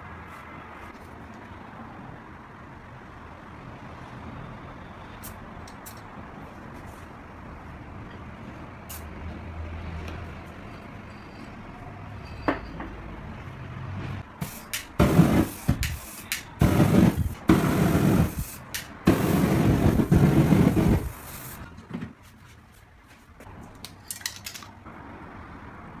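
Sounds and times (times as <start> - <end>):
aerosol spray can spraying: 14.4 - 21.7.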